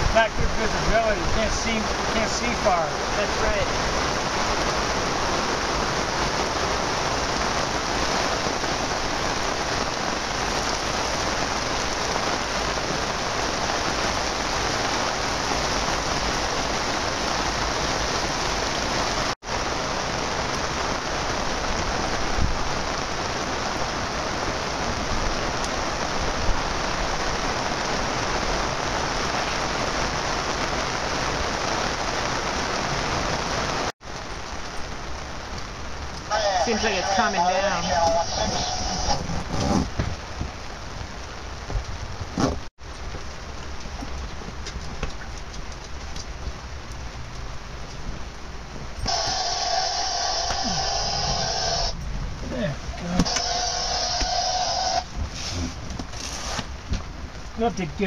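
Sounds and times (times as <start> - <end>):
heavy rain pouring: 0.0 - 58.0.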